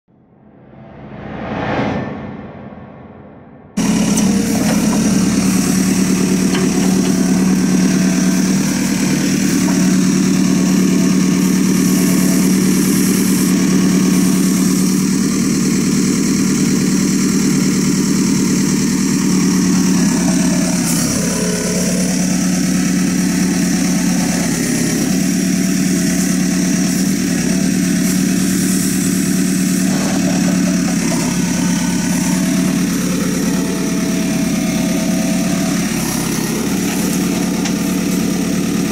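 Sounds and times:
backhoe digging soil: 3.8 - 14.8, 19.4 - 38.9
diesel engine running: 3.8 - 38.9.

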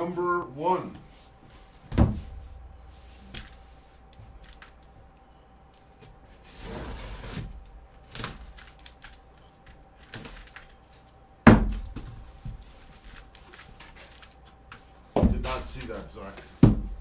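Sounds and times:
cardboard thump: 1.9 - 2.6, 11.4 - 12.2, 16.6 - 17.0
cardboard scraping: 6.2 - 7.6.

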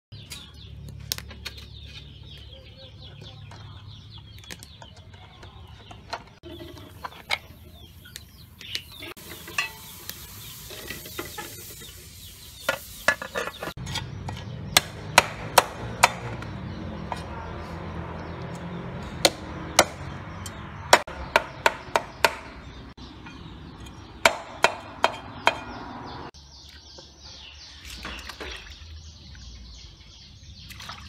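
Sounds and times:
chickens clucking: 1.4 - 14.6
cleaver chopping on wooden block: 14.4 - 16.5, 19.2 - 20.1, 20.9 - 22.6, 24.2 - 25.8.

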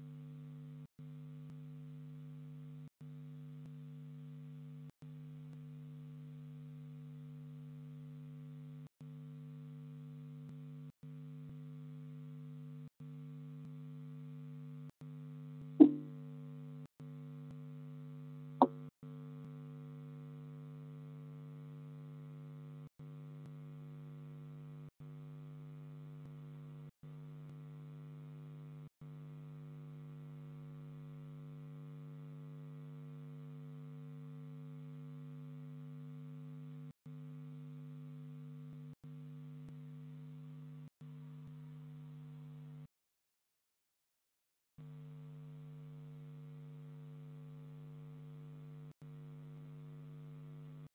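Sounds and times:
electrical hum: 15.8 - 16.1.

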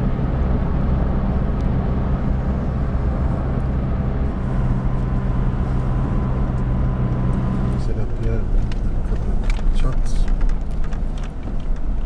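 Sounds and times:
low drone: 0.0 - 7.9
truck engine and road hum: 0.0 - 12.0.

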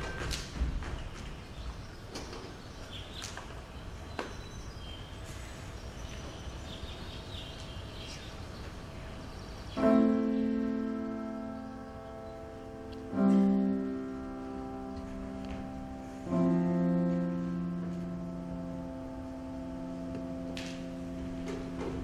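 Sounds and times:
low piano note ringing: 9.8 - 22.0.

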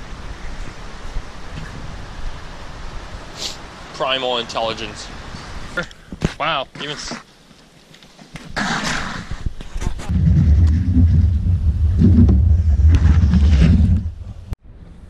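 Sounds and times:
bicycle tyres rumbling on boardwalk: 7.9 - 15.0.

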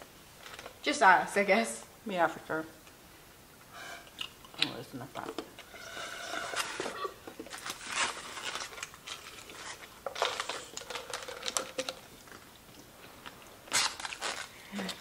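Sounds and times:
food packaging crinkling: 5.6 - 15.0.

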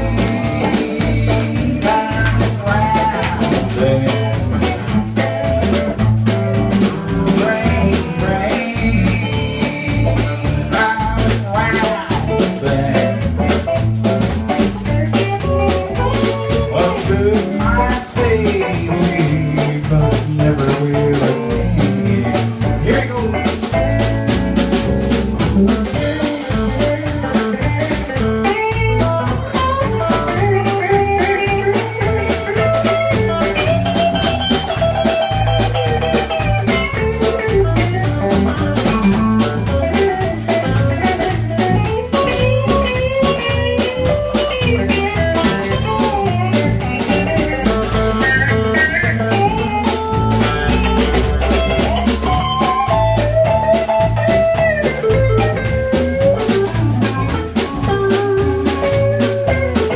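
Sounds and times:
drum kit steady beat: 0.0 - 59.9
electric bass: 0.0 - 59.9
electric guitar solo: 14.4 - 20.1, 24.9 - 59.9.

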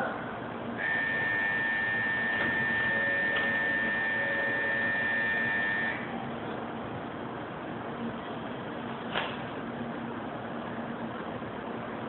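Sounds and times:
high electronic departure bell: 0.8 - 6.1.

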